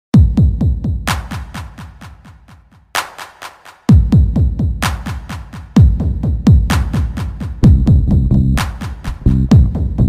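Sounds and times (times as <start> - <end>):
deep booming kick drum: 0.2 - 1.4, 3.9 - 10.0
electronic dance music: 0.2 - 10.0.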